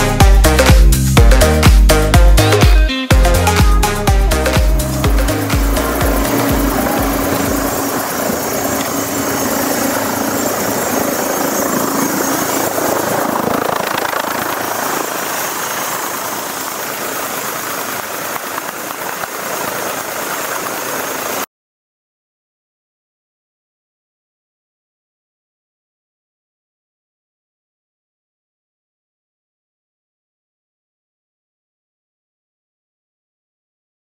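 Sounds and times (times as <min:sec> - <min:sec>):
background music: 0:00.0 - 0:10.4
helicopter turbine and rotor: 0:03.3 - 0:21.5.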